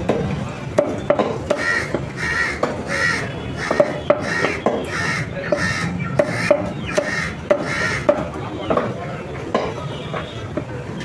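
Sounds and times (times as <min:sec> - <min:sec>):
harsh bird calls: 0:01.0 - 0:09.3.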